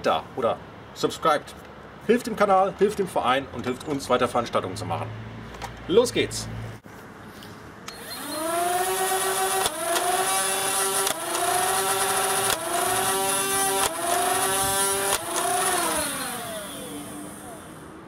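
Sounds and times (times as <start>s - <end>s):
blaster motor whine: 7.9s - 17.9s
dart blaster firing clicks: 9.4s - 10.2s, 10.9s - 12.8s, 15.0s - 16.0s.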